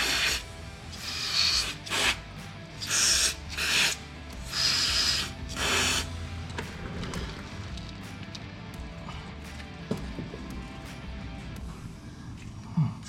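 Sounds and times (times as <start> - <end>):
aerosol spray hissing: 0.0 - 6.2.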